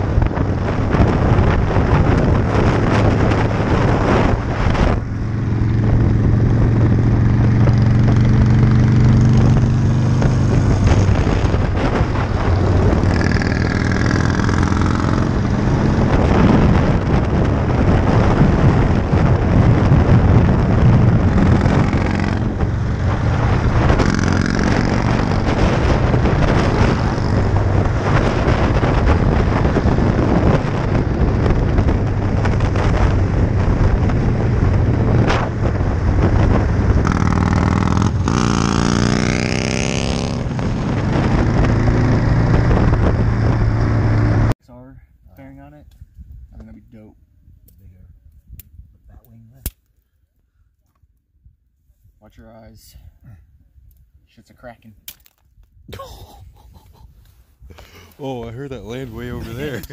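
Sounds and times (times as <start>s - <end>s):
motorcycle engine cruising: 0.0s - 44.6s, 58.0s - 59.9s
wind noise on microphone: 0.0s - 59.9s.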